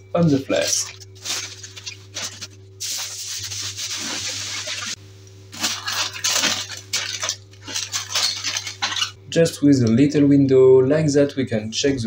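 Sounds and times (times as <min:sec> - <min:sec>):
aluminium foil crinkling: 0:00.2 - 0:09.2.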